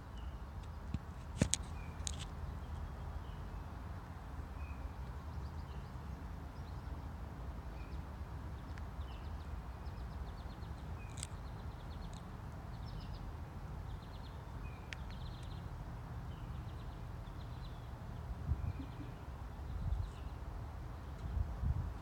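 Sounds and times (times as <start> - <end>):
wind rumble on microphone: 18.2 - 22.0.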